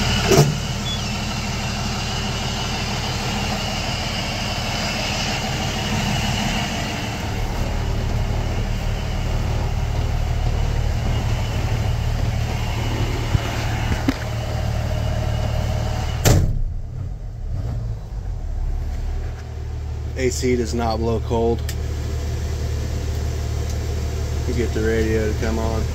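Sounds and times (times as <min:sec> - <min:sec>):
diesel engine idling: 0:00.0 - 0:25.9
cab door slamming: 0:16.2 - 0:17.2.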